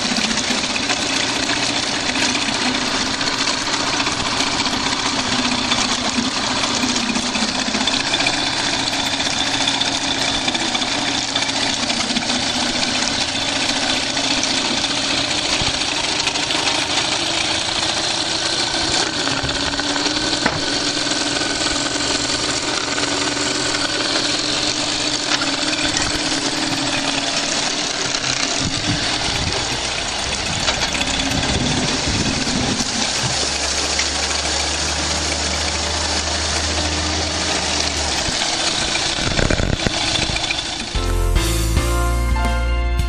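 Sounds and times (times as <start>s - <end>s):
propeller churning water: 0.0s - 41.0s
outboard engine running: 0.0s - 41.7s
music: 41.0s - 43.0s.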